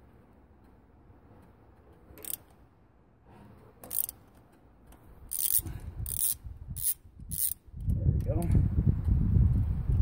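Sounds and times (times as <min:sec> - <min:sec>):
ratchet wrench clicking: 0:02.2 - 0:02.6, 0:03.8 - 0:04.2, 0:05.3 - 0:08.0.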